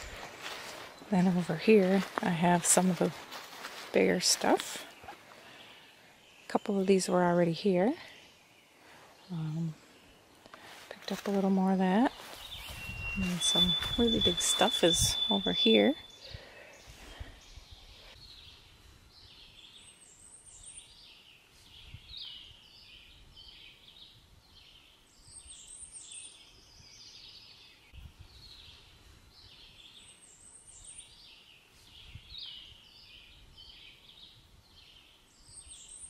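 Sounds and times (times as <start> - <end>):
songbird singing: 0.0 - 36.0.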